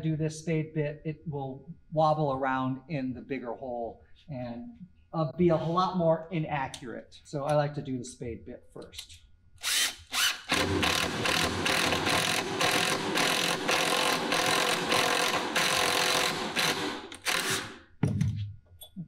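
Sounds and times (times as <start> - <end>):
cordless drill boring into wood: 9.6 - 17.8.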